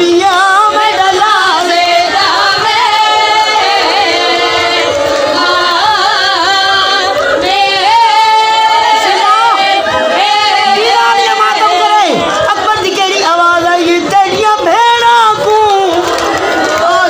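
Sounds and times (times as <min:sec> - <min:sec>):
woman singing a lament: 0:00.0 - 0:03.5.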